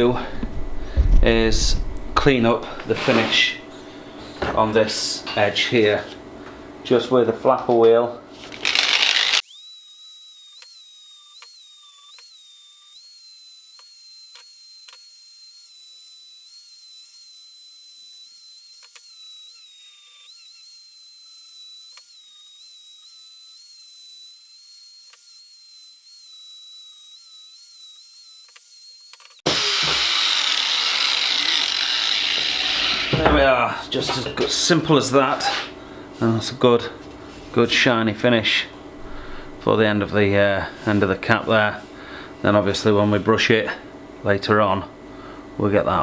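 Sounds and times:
angle grinder grinding steel: 8.4 - 35.8.

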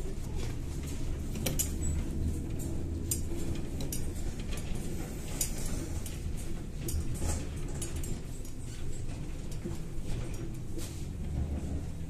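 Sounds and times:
body rattles and clinks: 0.0 - 12.0
trolleybus running gear rumble: 0.0 - 12.0.

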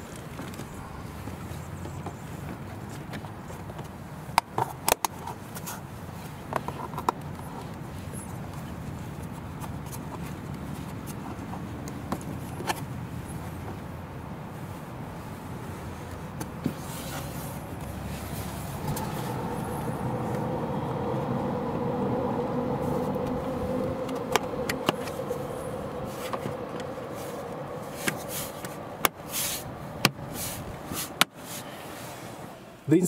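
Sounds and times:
steady background hum: 17.5 - 33.0.

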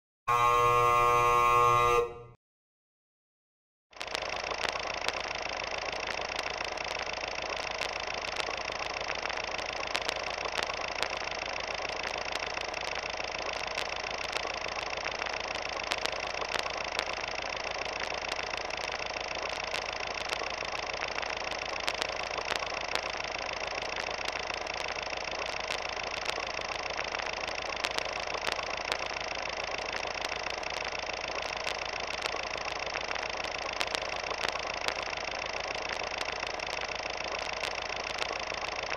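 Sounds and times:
mechanical whirring hum: 0.3 - 2.3.

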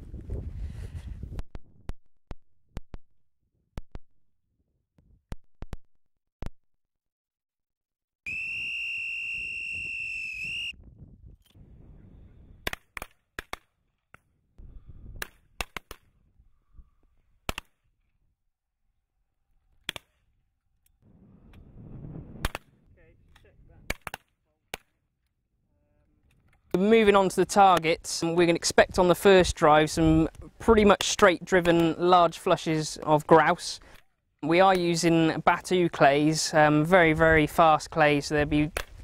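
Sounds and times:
whistle blown: 8.2 - 10.8.

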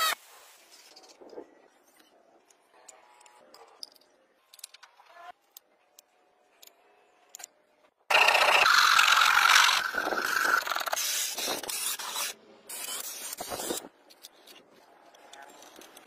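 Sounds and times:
power drill motor whine: 8.1 - 10.7.

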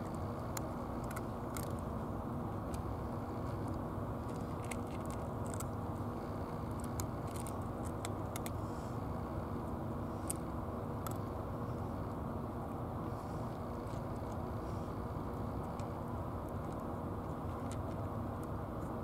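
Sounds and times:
cat crunching dry kibble: 0.0 - 8.8, 10.0 - 11.4, 13.3 - 18.9
steady low hum: 0.0 - 19.0.

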